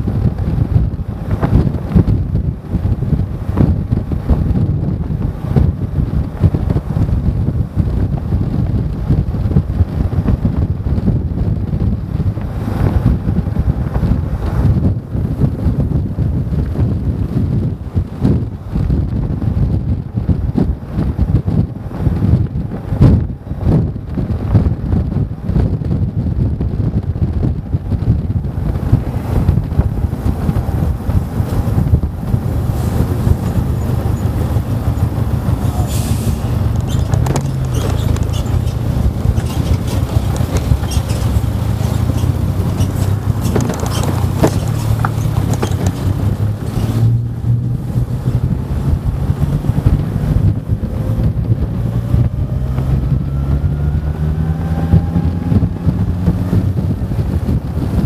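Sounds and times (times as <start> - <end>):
vehicle engine and road noise: 0.0 - 58.0
wind rushing: 0.0 - 58.0
lorry engine passing close: 28.7 - 56.7.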